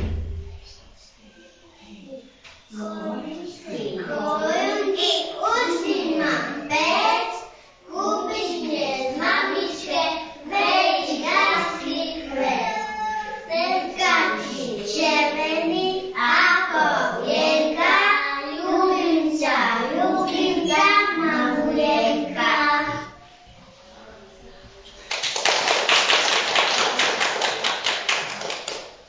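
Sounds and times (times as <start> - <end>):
young children singing: 2.7 - 23.6.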